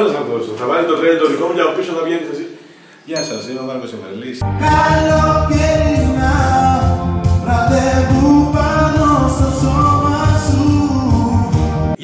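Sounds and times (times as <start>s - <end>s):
backing track with steady beat: 4.4s - 12.0s
person singing long notes: 4.4s - 12.0s.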